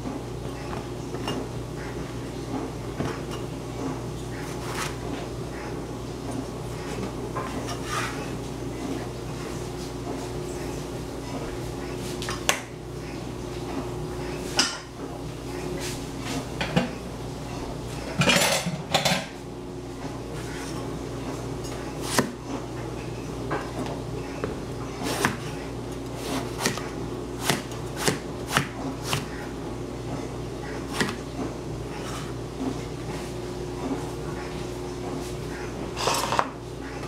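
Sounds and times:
steady low hum: 0.0s - 37.0s
cleaver chopping on cutting board: 25.0s - 25.5s, 26.3s - 29.3s, 30.9s - 31.2s.

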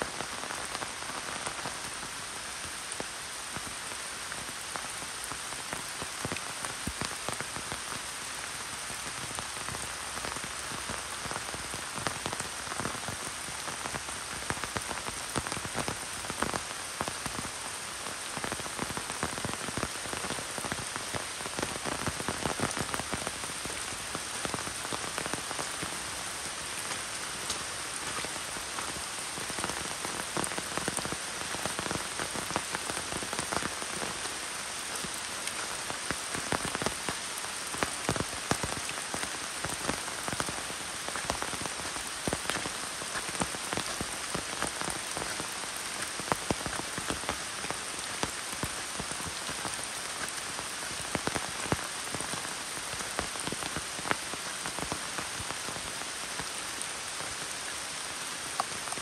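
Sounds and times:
rain on leaves and gravel: 0.0s - 59.0s
raindrops ticking: 18.3s - 52.4s.

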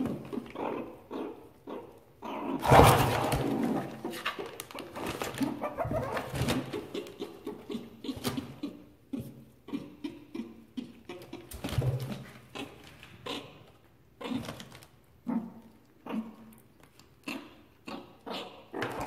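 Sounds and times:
meerkats calling: 5.4s - 11.6s.

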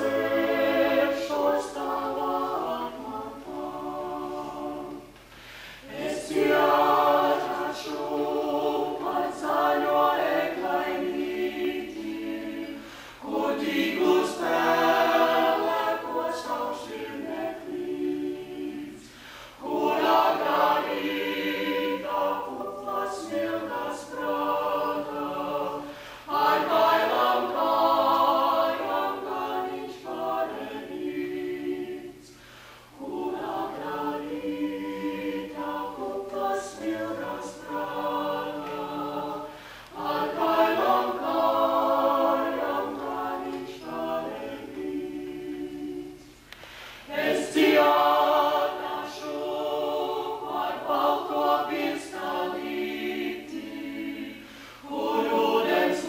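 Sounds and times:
a cappella group singing in harmony: 0.0s - 56.0s.

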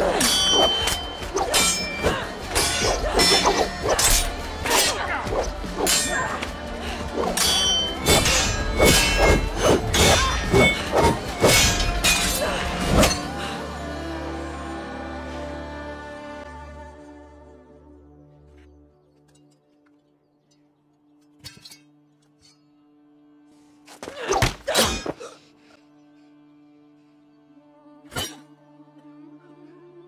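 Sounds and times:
steel swords clashing: 0.0s - 13.3s.

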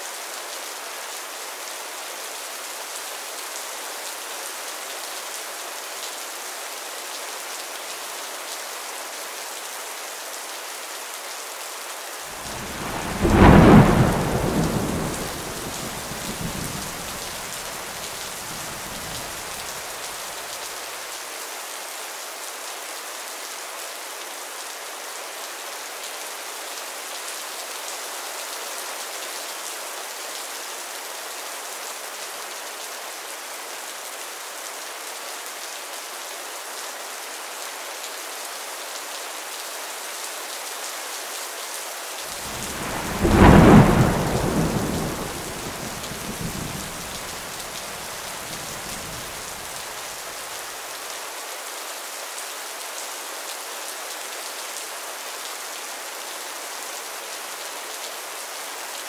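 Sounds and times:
steady rain hissing: 0.0s - 59.0s
thunder rumbling: 12.4s - 17.8s, 42.4s - 49.7s.

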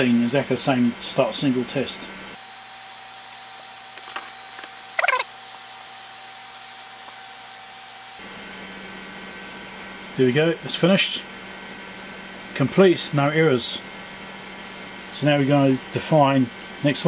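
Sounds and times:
squeaky chirp: 5.0s - 5.3s.

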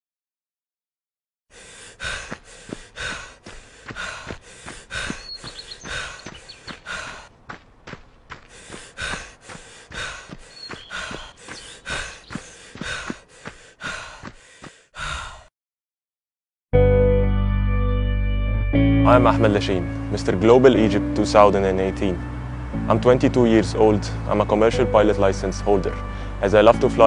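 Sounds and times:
person panting: 1.5s - 15.5s, 26.0s - 26.4s.

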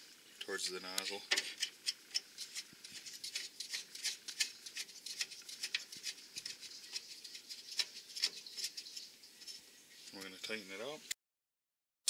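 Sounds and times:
metallic clicks and scrapes: 1.0s - 10.3s.

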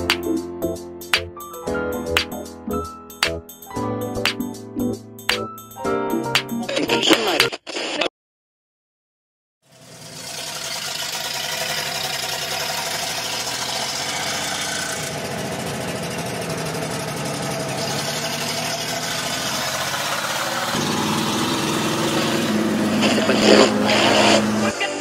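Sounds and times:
pickup engine running: 9.7s - 25.0s.

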